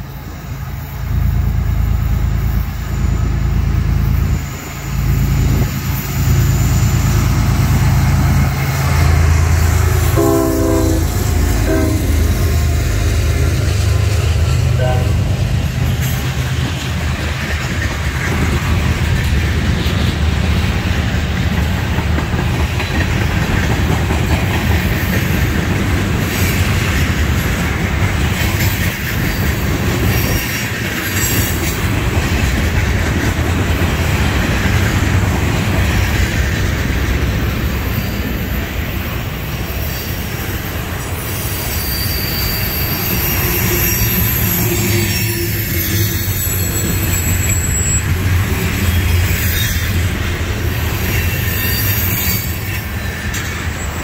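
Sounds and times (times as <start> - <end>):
freight cars rumbling on rails: 0.0 - 54.0
high wheel squeal: 37.6 - 54.0.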